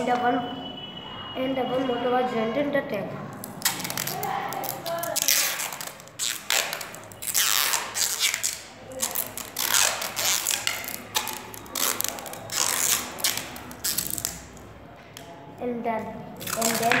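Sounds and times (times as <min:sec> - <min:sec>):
hands rustling and scraping wires: 0:03.4 - 0:14.4.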